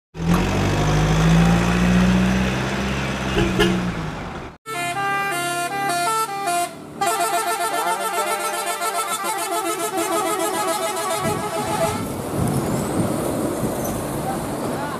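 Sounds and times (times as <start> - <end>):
truck air horn blasting: 3.3 - 4.0, 4.7 - 12.1.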